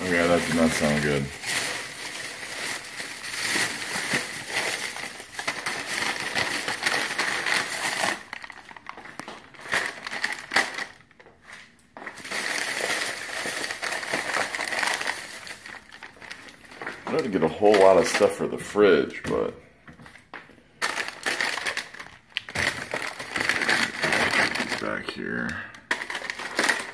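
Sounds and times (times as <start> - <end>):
plastic bags rustling: 0.0 - 26.9.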